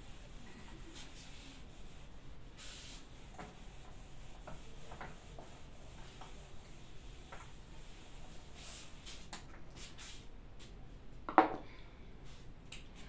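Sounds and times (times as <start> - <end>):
duster rubbing on whiteboard: 0.0 - 10.2.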